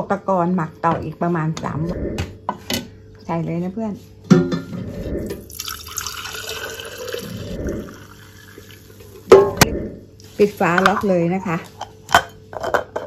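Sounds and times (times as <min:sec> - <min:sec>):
wine pouring into a glass jar: 0:05.5 - 0:09.2.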